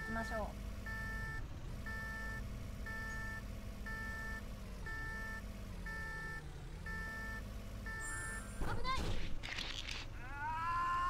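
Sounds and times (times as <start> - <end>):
forklift warning beeper: 0.0 - 8.6
low engine hum: 0.0 - 11.0.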